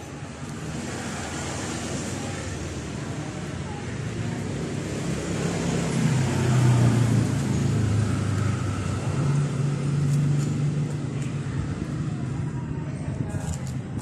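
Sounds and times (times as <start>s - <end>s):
engine humming: 0.0s - 14.0s.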